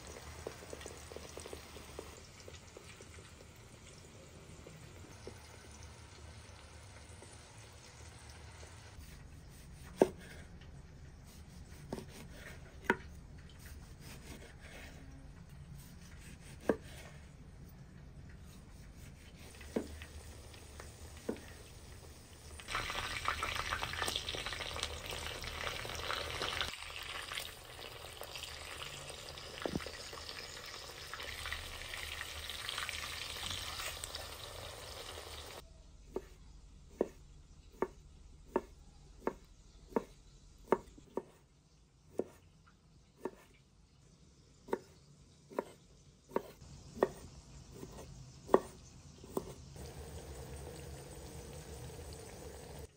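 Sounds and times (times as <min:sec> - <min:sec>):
patties sizzling in oil: 0:00.0 - 0:09.0, 0:17.7 - 0:35.6, 0:46.2 - 0:52.9
knife slicing tomato: 0:09.0 - 0:10.5, 0:11.2 - 0:15.1, 0:15.7 - 0:17.3, 0:18.4 - 0:20.0, 0:36.1 - 0:41.4, 0:44.7 - 0:49.6
knife chopping on board: 0:09.8 - 0:10.4, 0:11.6 - 0:13.1, 0:16.0 - 0:17.1, 0:36.1 - 0:41.4, 0:44.7 - 0:49.6.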